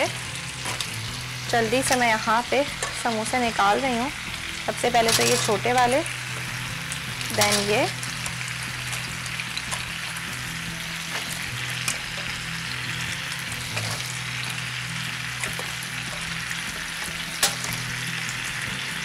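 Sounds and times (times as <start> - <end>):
food sizzling in hot oil: 0.0 - 19.0
metal tongs clicking: 17.4 - 17.8.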